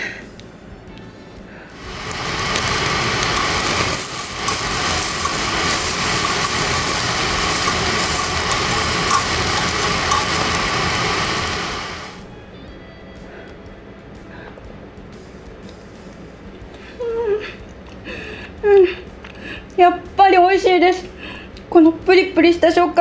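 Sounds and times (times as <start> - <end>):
steaks sizzling on a grill: 1.8 - 12.2.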